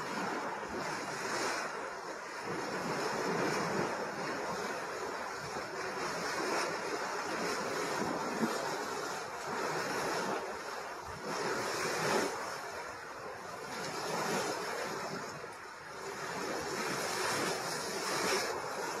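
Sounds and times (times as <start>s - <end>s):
water rushing and splashing: 0.0s - 19.0s.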